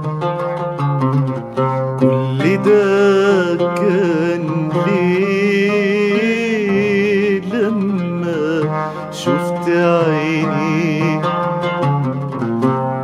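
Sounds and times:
oud playing: 0.0s - 13.0s.

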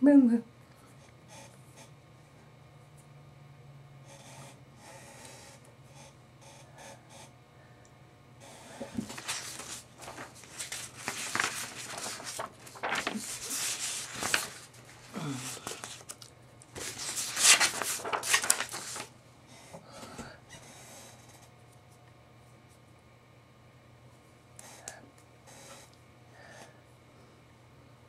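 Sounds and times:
paper rustling and crinkling: 8.9s - 19.1s.

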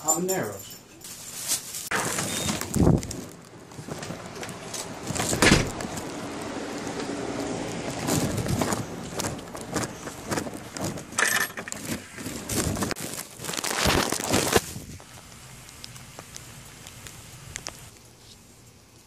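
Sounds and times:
footsteps on grass and dirt: 7.0s - 15.3s.

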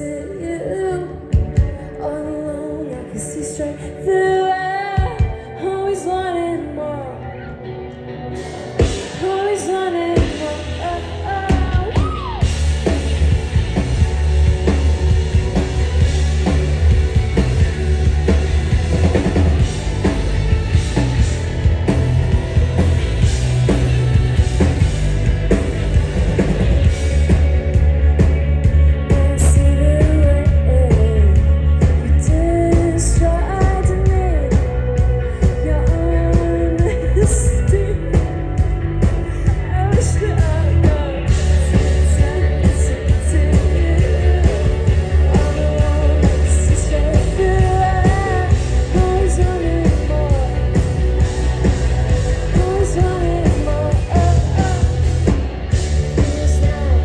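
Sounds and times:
woman singing: 0.0s - 7.7s, 8.8s - 13.7s, 29.0s - 57.0s
electric guitars: 0.0s - 57.0s
live rock band: 0.0s - 57.0s
heavy bass: 7.5s - 57.0s
drum kit: 8.4s - 57.0s.

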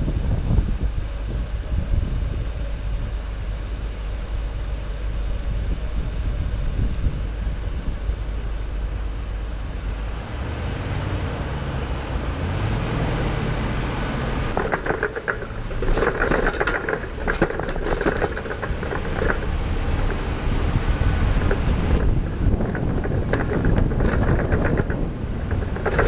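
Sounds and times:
bus engine and road rumble: 0.0s - 26.0s
rattling and squeaking clatter: 14.4s - 26.0s.

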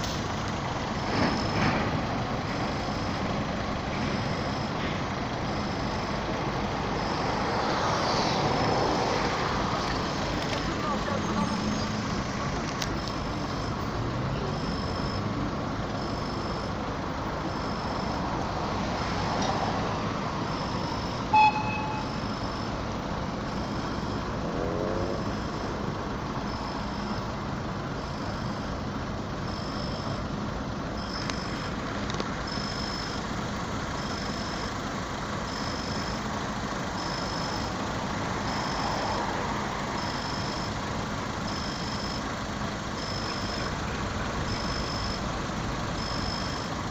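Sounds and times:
crossing signal beeping: 0.0s - 46.9s
short loud toot: 21.3s - 22.2s.

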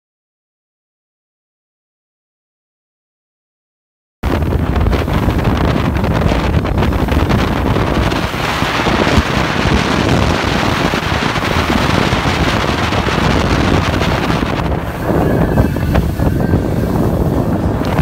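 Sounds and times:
boat rushing over water: 4.2s - 18.0s
wind buffeting the microphone: 4.2s - 18.0s.

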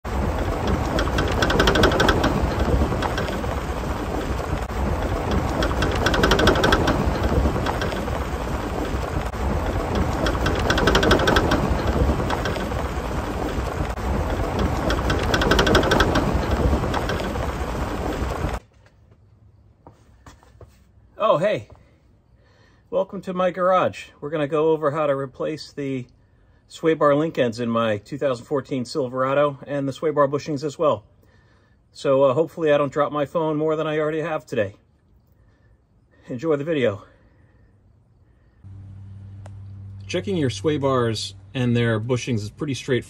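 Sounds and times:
steady low rumble: 0.0s - 18.6s
suspension rattling knock: 0.0s - 18.6s.

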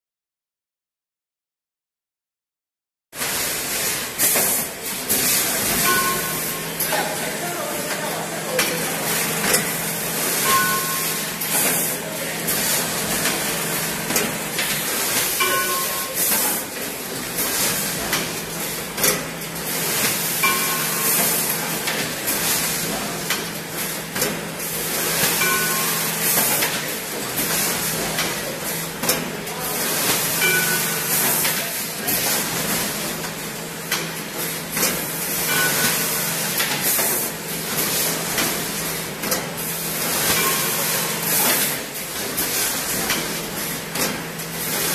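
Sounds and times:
steady machine hum: 3.4s - 26.4s
short high tones: 10.4s - 11.2s.

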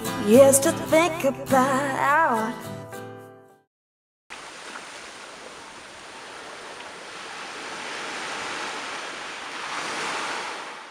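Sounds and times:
waves washing onto a beach: 4.4s - 10.9s.

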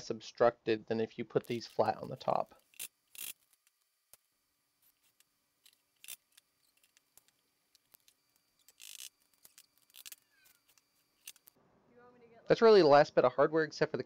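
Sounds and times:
short scraping rasps: 1.5s - 3.7s, 8.0s - 11.6s.

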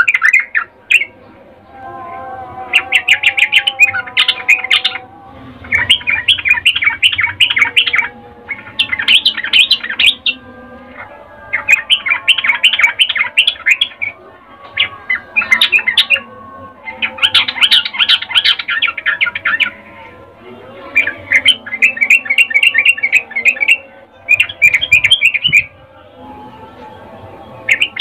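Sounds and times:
bird chattering: 5.7s - 10.4s, 21.0s - 25.7s, 27.7s - 28.0s.

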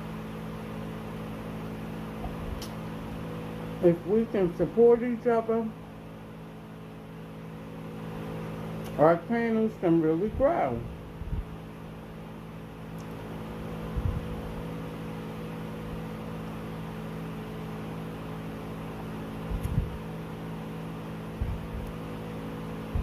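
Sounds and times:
steady mechanical hum: 0.0s - 23.0s
soft low thumps: 21.4s - 21.8s.

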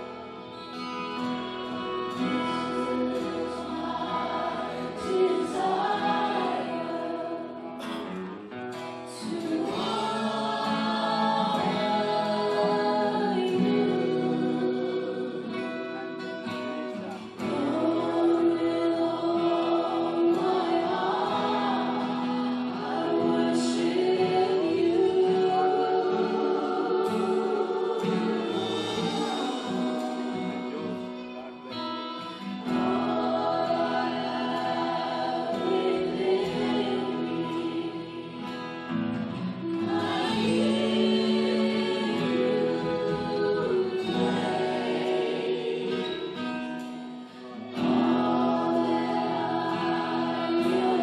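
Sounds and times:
choir singing a hymn: 0.0s - 51.0s
instrumental accompaniment: 0.0s - 51.0s.

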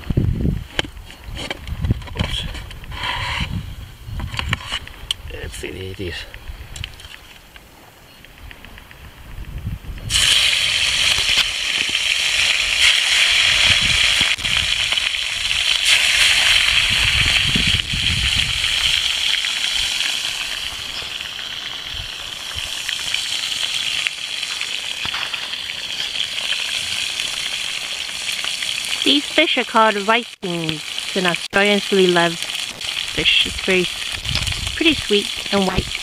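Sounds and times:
fish sizzling in hot oil: 10.1s - 36.0s.

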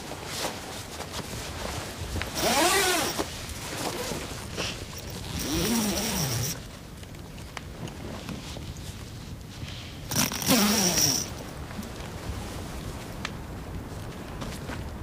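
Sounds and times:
tent zipper rasping: 2.3s - 6.6s, 10.1s - 11.4s.

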